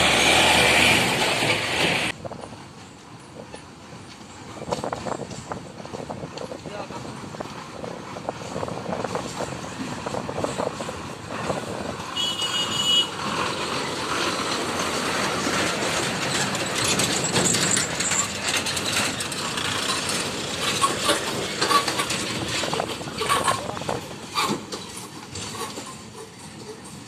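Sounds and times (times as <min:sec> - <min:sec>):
lorry diesel engines running: 0:00.0 - 0:27.0
lorry bodies and loads rattling: 0:13.2 - 0:27.0.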